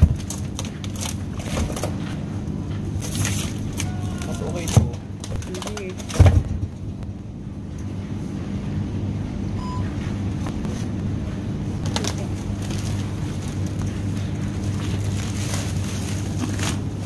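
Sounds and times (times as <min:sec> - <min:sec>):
freezer cabinets humming: 0:00.0 - 0:17.0
ventilation hum: 0:00.0 - 0:17.0
short beep: 0:09.6 - 0:09.9
plastic bag crinkling: 0:11.9 - 0:17.0.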